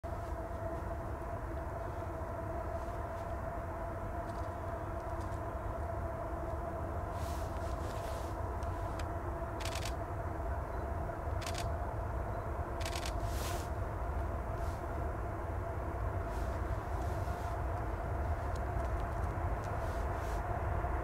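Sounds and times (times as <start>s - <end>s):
distant train locomotive drone: 0.0s - 21.0s
faint rustles: 0.1s - 3.6s, 6.5s - 10.0s, 12.8s - 15.1s, 16.2s - 20.6s.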